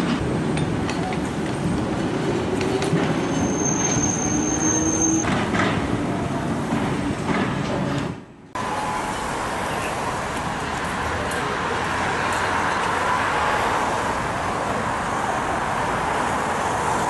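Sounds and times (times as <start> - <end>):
streetcar rumbling over tracks: 0.0 - 17.0
high wheel squeal: 3.1 - 5.3.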